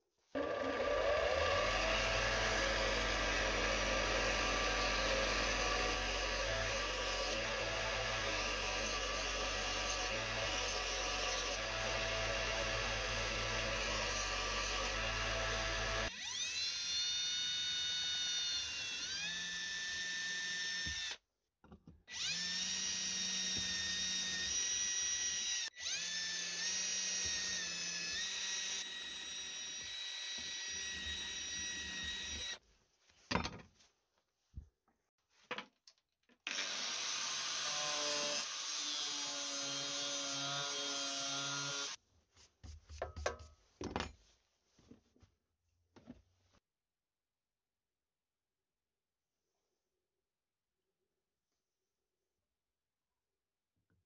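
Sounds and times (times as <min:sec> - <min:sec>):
electric drill boring through steel: 0:00.4 - 0:21.2, 0:22.1 - 0:32.6, 0:36.5 - 0:42.0.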